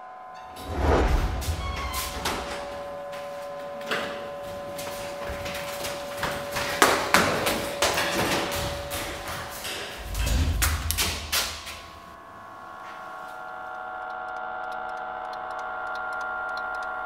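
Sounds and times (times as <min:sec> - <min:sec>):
steady humming tone: 0:00.0 - 0:17.0
quick footsteps on hard floor: 0:00.7 - 0:12.1.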